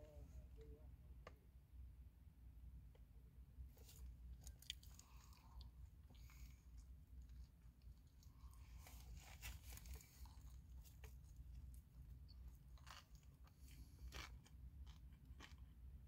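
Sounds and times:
person chewing crunchy food: 0:03.8 - 0:16.0.

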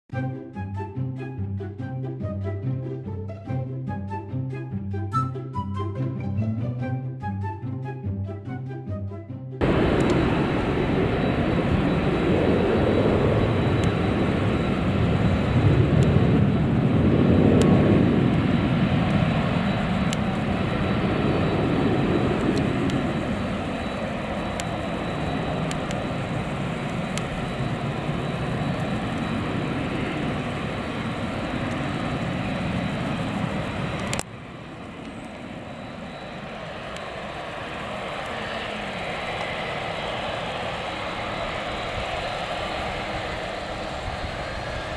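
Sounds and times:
jet engines running: 0:09.6 - 0:44.9.

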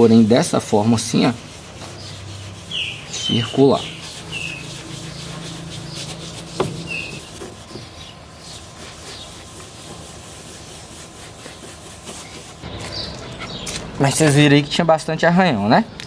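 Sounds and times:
sock scrubbing car paint: 0:00.0 - 0:14.4.

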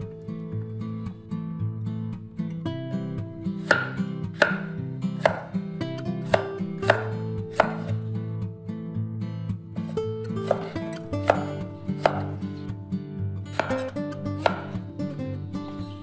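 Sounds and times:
soft guitar music: 0:00.0 - 0:16.0
knife knocking on cutting board: 0:03.7 - 0:05.5, 0:06.4 - 0:07.9, 0:10.5 - 0:12.4, 0:13.5 - 0:14.8.

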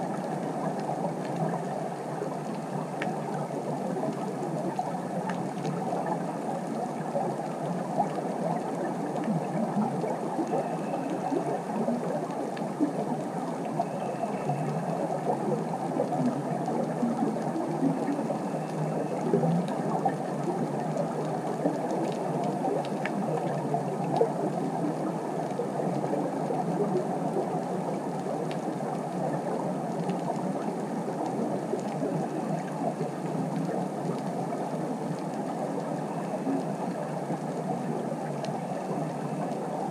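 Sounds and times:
muffled underwater hiss: 0:00.0 - 0:39.9
faint clicks: 0:02.4 - 0:03.2, 0:03.9 - 0:08.6, 0:09.2 - 0:27.0, 0:28.1 - 0:39.6.

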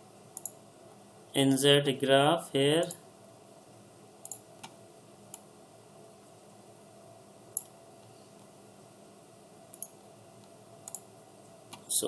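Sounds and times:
faint room hiss: 0:00.0 - 0:12.0
computer mouse clicking: 0:00.4 - 0:00.6, 0:04.2 - 0:05.4, 0:07.6 - 0:07.8, 0:09.7 - 0:11.1.

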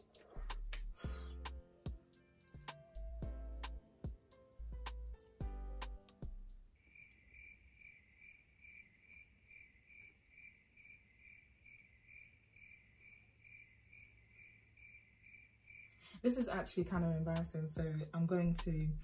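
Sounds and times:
cricket chirping: 0:06.7 - 0:16.1.

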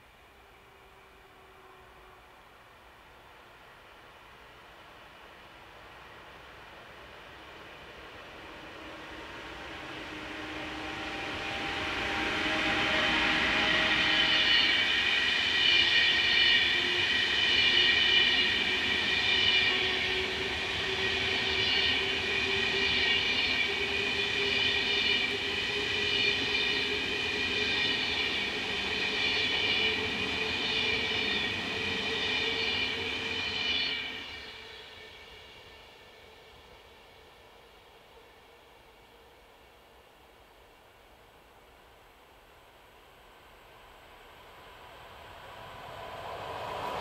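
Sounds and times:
train wheels rolling on rails: 0:06.0 - 0:35.7
high squealing wheels: 0:08.3 - 0:36.2.

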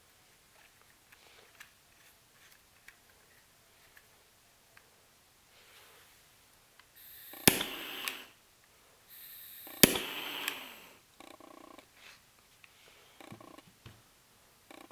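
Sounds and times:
gas hissing: 0:07.0 - 0:08.4, 0:09.1 - 0:11.0
jet flame hissing: 0:07.0 - 0:08.4, 0:09.1 - 0:11.0
igniter click: 0:07.2 - 0:08.3, 0:09.6 - 0:10.8.

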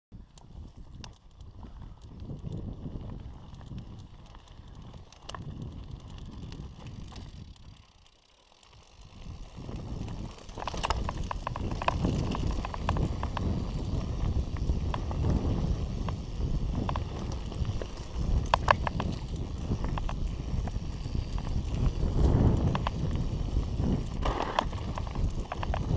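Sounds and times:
wind rumbling on microphone: 0:00.1 - 0:08.0, 0:08.7 - 0:25.9
bike rattling clatter: 0:00.2 - 0:25.9
tyres crunching over stones: 0:08.6 - 0:15.2.

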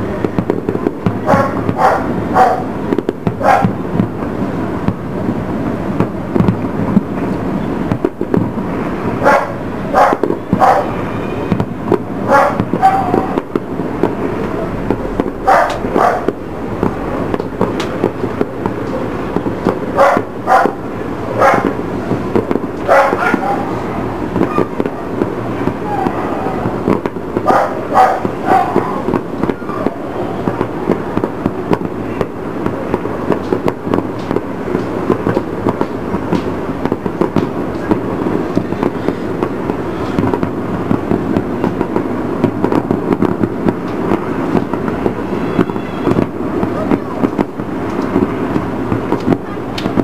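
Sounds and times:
fireworks bangs and crackles: 0:00.0 - 0:50.0
steady background rumble: 0:00.0 - 0:50.0.

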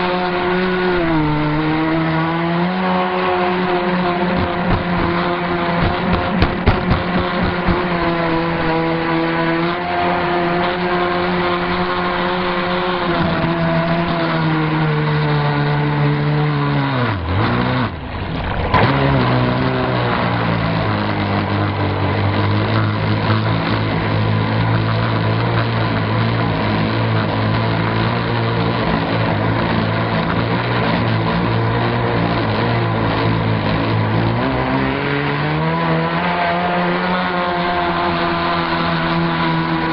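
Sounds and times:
model boat motor running: 0:00.0 - 0:39.9
sharp knocks: 0:05.8 - 0:07.8.

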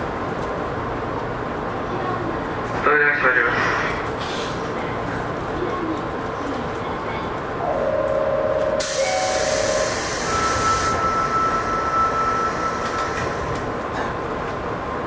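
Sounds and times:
electric train humming: 0:06.8 - 0:15.0
held tone: 0:07.6 - 0:13.0
higher steady tone: 0:07.6 - 0:13.1.

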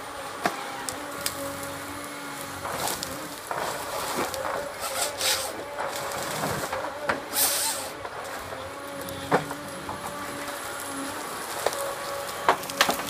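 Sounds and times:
diesel engine running: 0:00.0 - 0:13.0
wood cracking: 0:00.3 - 0:13.0
hydraulic hiss: 0:07.3 - 0:08.0.

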